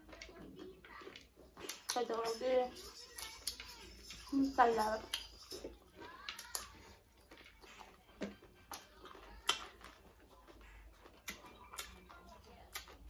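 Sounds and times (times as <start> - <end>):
chewing and lip smacks: 0.0 - 2.2, 5.0 - 13.0.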